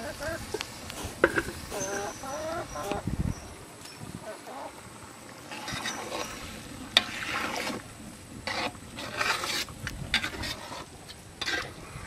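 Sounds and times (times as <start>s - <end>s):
metal ladle scraping pot: 1.0s - 3.0s, 5.5s - 7.8s, 8.4s - 11.8s.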